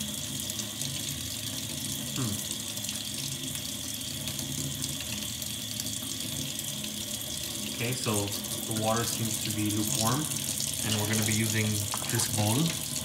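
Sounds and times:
tap running into steel sink: 10.8s - 12.9s.

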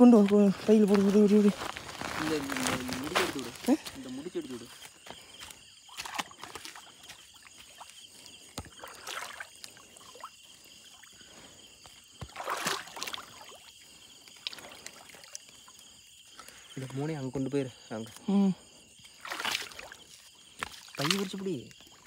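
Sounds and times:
water splashing and dripping: 0.0s - 17.0s, 19.1s - 22.0s
net rustling: 0.5s - 4.0s.

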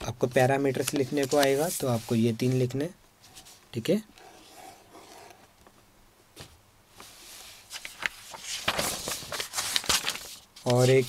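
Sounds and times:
paper rustling: 0.7s - 2.2s, 7.0s - 11.0s.

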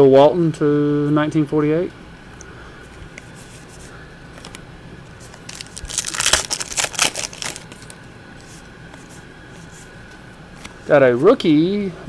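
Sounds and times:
foil wrapper crinkling: 5.3s - 8.0s.

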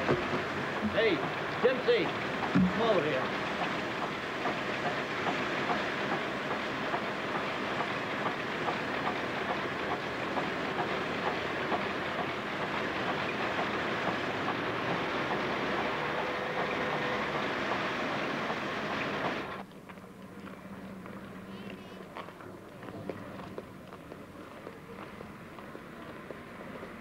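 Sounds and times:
sawmill machinery clatter: 0.0s - 19.6s.

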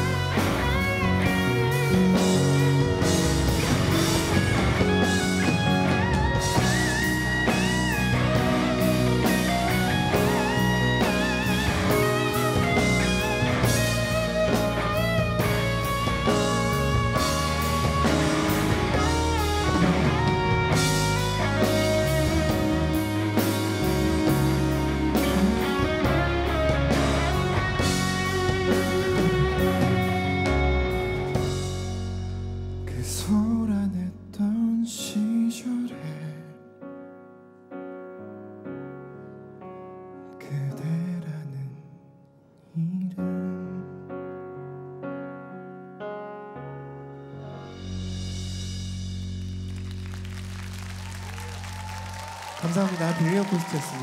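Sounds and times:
electric guitar lead with bent notes: 0.0s - 32.8s
live rock band: 0.0s - 33.6s, 47.5s - 54.0s.

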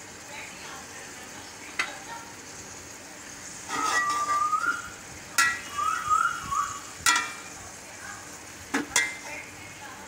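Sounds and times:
meat sizzling in a pot: 0.0s - 10.0s
spatula clinking on pot: 3.7s - 4.5s, 5.4s - 5.7s, 7.0s - 7.6s, 8.8s - 9.3s
parrot whistling: 3.8s - 6.9s.

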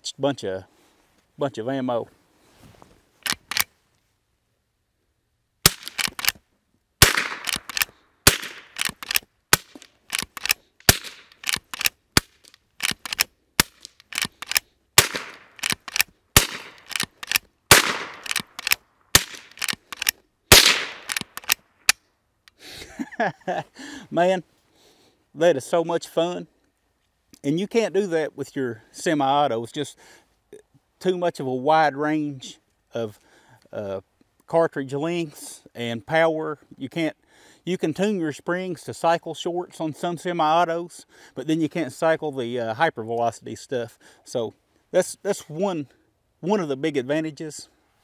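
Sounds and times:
rifle lever clacking: 3.2s - 3.7s, 5.7s - 6.4s, 7.0s - 21.6s
rifle shots: 5.6s - 6.4s, 7.0s - 21.6s.

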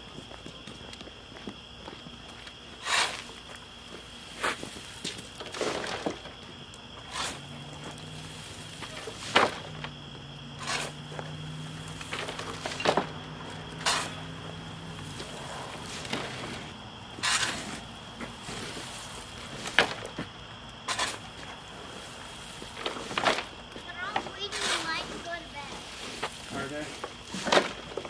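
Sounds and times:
shovel scraping wood chips: 2.8s - 3.4s, 4.2s - 6.4s, 7.0s - 28.0s.

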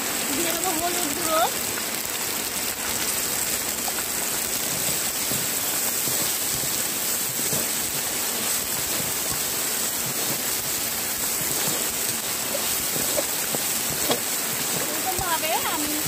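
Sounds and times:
steady rain: 0.0s - 16.0s.

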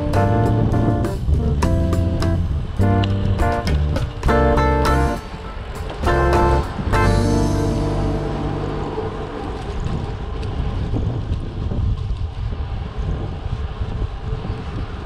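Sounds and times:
background music: 0.0s - 9.8s
wind buffeting microphone: 0.0s - 15.0s.

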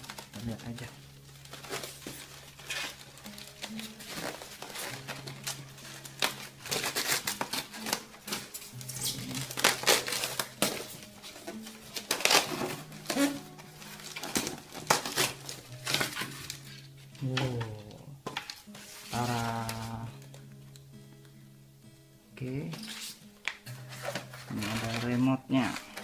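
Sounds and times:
crinkling: 0.0s - 21.3s, 22.4s - 26.0s
styrofoam rubbing and squeaking: 1.5s - 17.0s, 22.8s - 23.2s, 23.8s - 26.0s.

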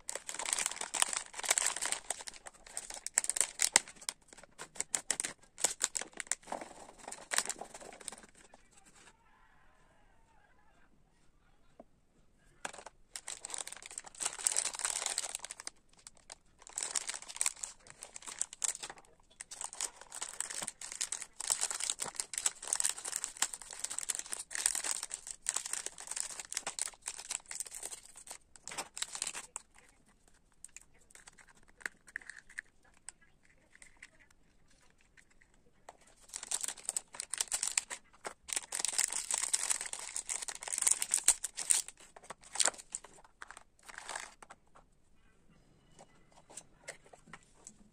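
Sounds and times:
plastic wrappers crinkling and tearing: 0.0s - 8.6s, 12.6s - 44.6s.

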